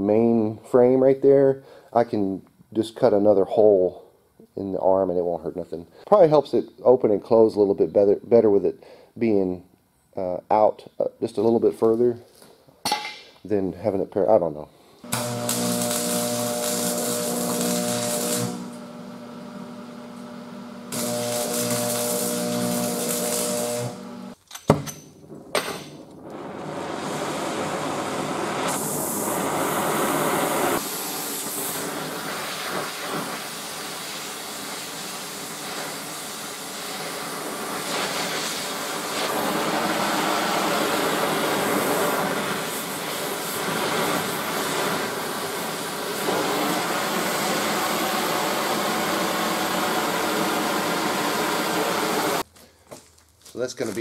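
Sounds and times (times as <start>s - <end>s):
cutting torch hissing: 15.0s - 24.4s, 26.2s - 52.5s
torch lighting pop: 15.1s - 18.8s, 20.9s - 24.0s.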